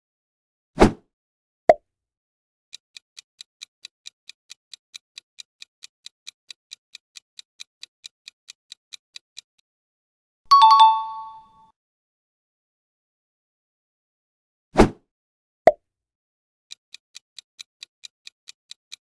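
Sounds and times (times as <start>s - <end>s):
clock ticking: 2.7s - 9.6s, 16.7s - 19.0s.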